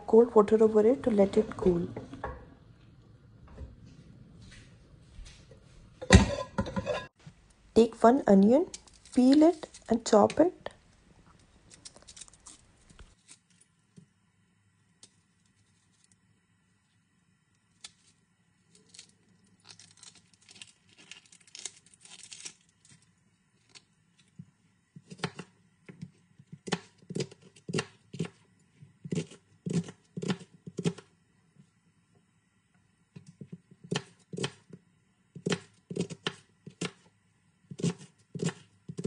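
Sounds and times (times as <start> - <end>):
onion skin crackling and tearing: 8.7 - 10.1, 11.4 - 13.7, 17.6 - 24.4
knife cutting onion on plastic board: 25.0 - 31.1, 33.3 - 37.1, 37.7 - 39.0.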